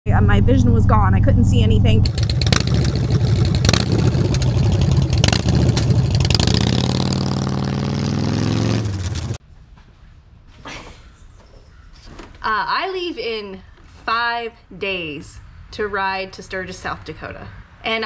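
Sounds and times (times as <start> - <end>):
motorcycle engine running: 0.2 - 9.4.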